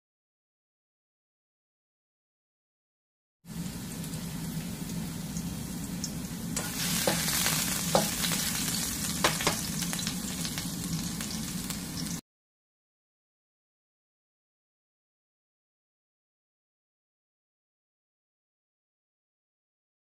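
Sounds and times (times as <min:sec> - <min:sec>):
garlic sizzling in hot oil: 0:03.5 - 0:12.2
spatula tapping on pan: 0:07.0 - 0:08.4, 0:09.2 - 0:09.7.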